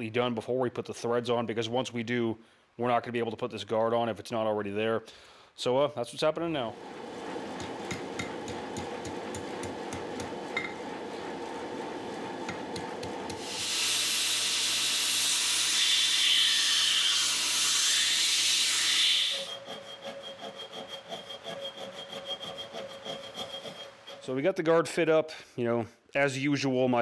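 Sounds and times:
steady low rush: 6.5s - 13.5s
hammer tapping on metal: 7.6s - 10.8s
file rasping on metal: 12.5s - 24.3s
belt grinder grinding metal: 12.6s - 24.3s.

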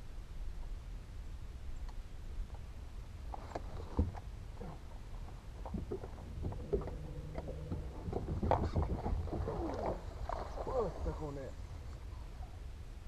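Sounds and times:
wind rumble on microphone: 3.5s - 13.0s
steady hum: 4.5s - 12.3s.

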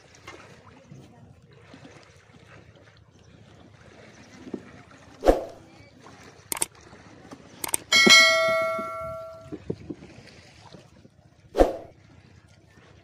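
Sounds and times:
notification bell ding: 7.7s - 9.5s.

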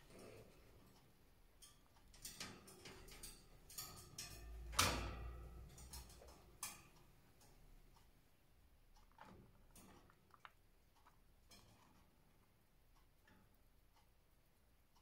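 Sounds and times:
birds pecking grain in dish: 8.6s - 13.9s.

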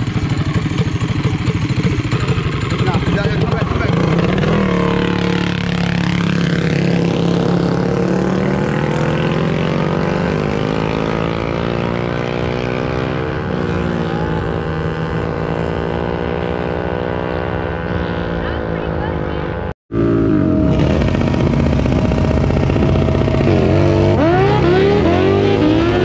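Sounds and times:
mini bike engine revving: 0.0s - 26.0s.

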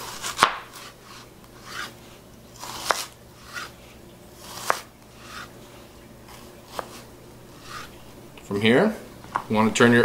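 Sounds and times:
knife slicing through onion: 0.0s - 5.6s, 6.2s - 8.2s.

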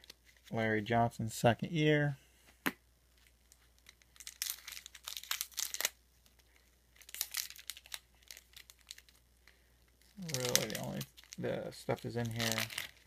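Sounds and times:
plastic wrapper crinkling: 3.2s - 13.0s.

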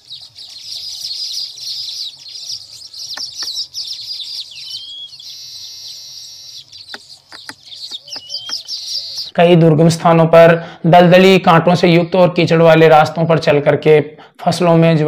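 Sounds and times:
birds chattering with high chirps: 0.0s - 15.0s
wheezy buzzing bird note: 3.1s - 9.3s.

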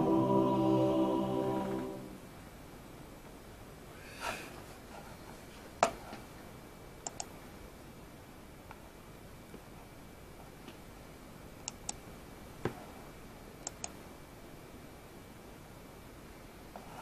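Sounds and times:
background music: 0.0s - 2.3s.

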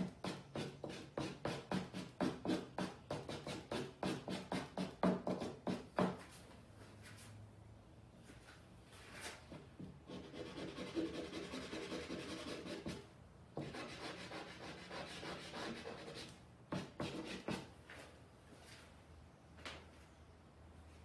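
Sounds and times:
charcoal scratching on canvas: 10.1s - 13.0s, 13.7s - 17.6s.

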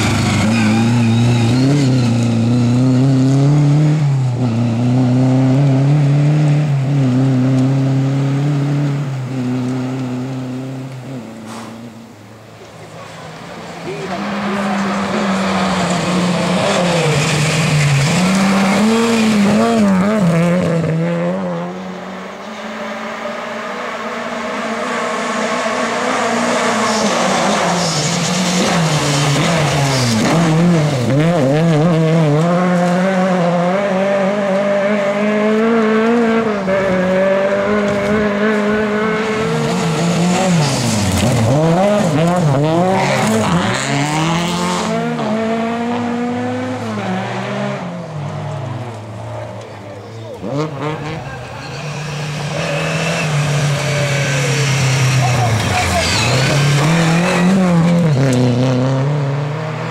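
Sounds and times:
rally car engines revving: 0.0s - 59.9s
tyres sliding on gravel: 39.5s - 44.0s.

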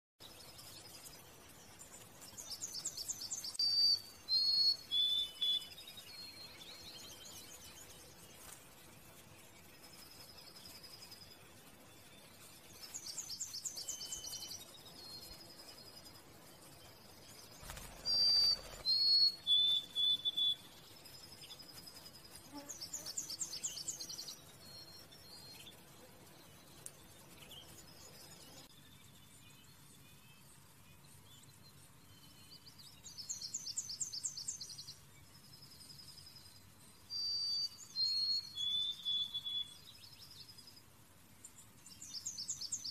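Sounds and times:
songbird singing: 0.2s - 42.9s
bird trill: 0.3s - 8.6s, 9.9s - 30.2s, 37.1s - 40.2s.

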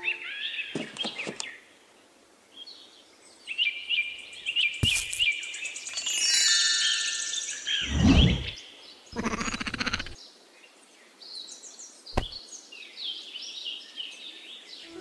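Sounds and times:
birds chirping: 4.4s - 10.2s.

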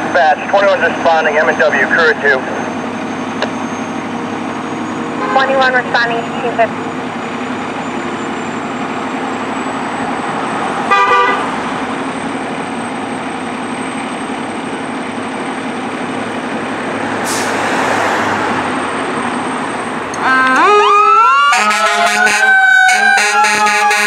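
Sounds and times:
diesel engine idling: 0.0s - 23.2s
air horn toot: 5.2s - 6.1s, 10.9s - 11.5s, 21.5s - 24.0s.

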